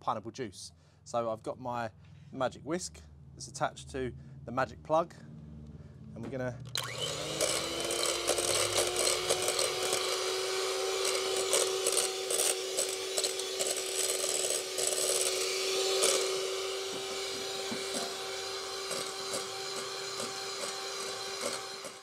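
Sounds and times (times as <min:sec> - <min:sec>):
beaters scraping bowl: 0:06.7 - 0:22.0
electric hand mixer humming: 0:06.7 - 0:22.0.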